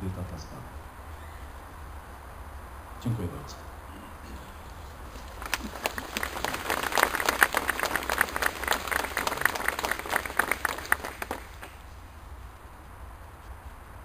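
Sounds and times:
crowd applauding: 5.2 - 11.8.

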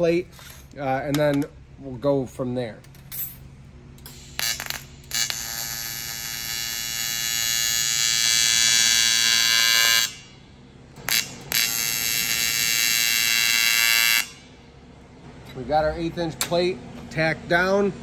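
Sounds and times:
welding arc buzzing: 4.0 - 10.4, 11.0 - 14.6.

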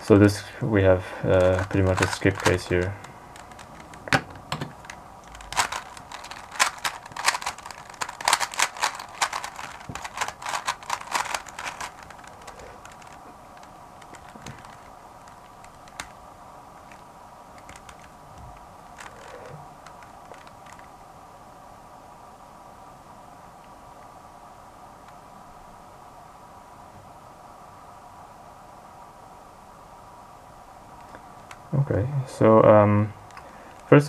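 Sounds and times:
puzzle cube plastic clicks: 1.3 - 16.2, 16.8 - 20.9.

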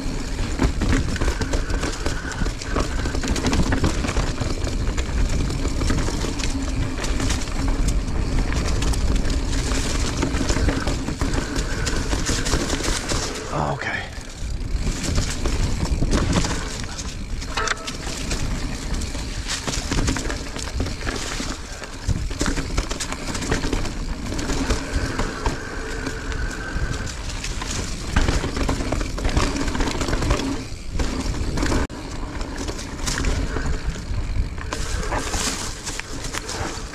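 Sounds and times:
bike chain and frame rattle: 0.0 - 36.9
bike tyres rolling on dirt: 0.0 - 36.9
wind noise on microphone: 14.3 - 21.2.

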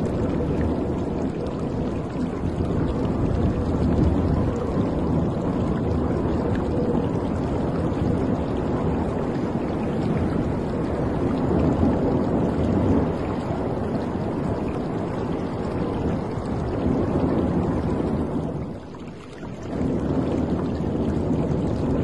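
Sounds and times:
low rumble: 0.0 - 22.0
water rushing against ship hull: 0.0 - 22.0.

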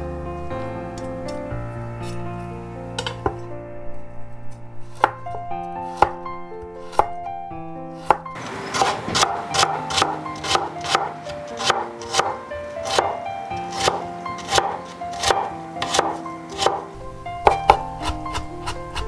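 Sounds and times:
background music: 0.0 - 19.0
knife chopping on wooden board: 8.0 - 16.9.

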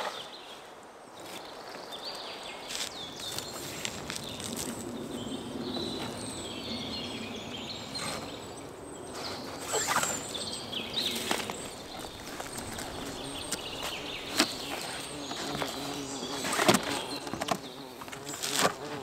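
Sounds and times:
small birds chirping: 0.0 - 19.0
gear rustling and clicking: 11.1 - 18.9.

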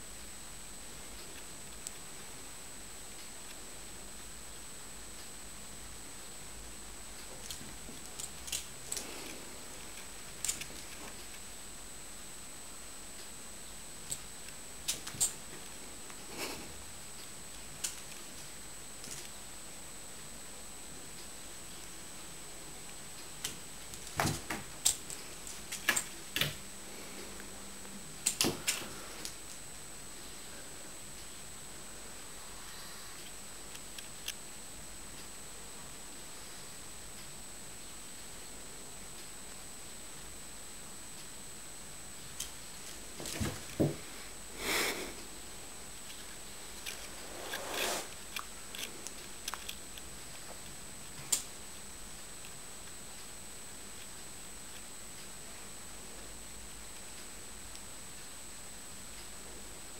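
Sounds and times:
breathy puffs: 44.0 - 45.3.

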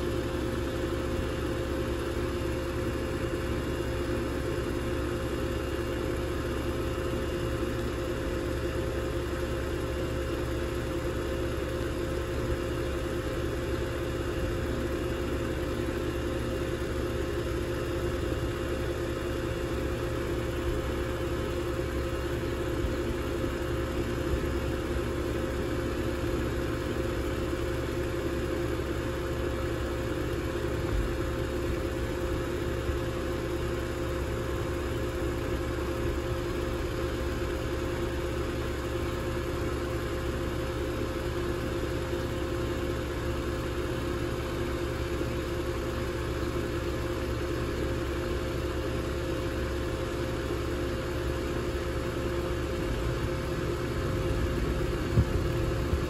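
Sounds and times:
air conditioner humming: 52.8 - 56.0.

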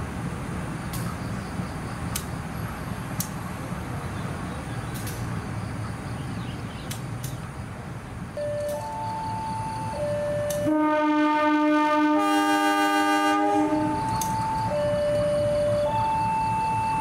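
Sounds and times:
diesel locomotive engine rumbling: 0.0 - 17.0
sharp clicks: 2.1 - 2.4, 4.9 - 5.3, 6.8 - 7.4, 14.0 - 14.5
train horn: 10.5 - 14.1.

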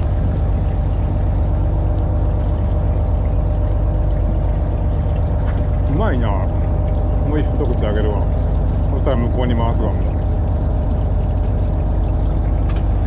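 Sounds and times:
boat engine humming: 0.0 - 13.0
water running from hoses: 0.0 - 13.0.

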